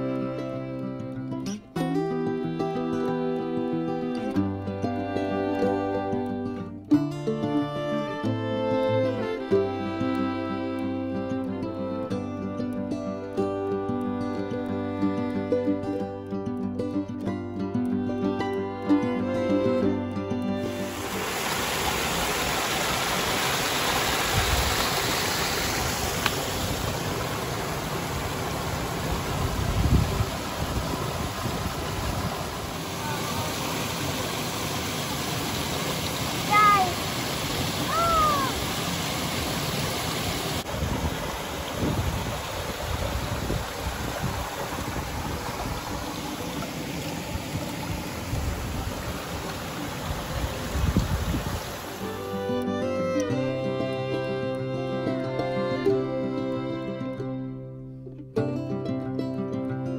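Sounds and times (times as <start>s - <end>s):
waterfall pouring over rocks: 20.7s - 52.3s.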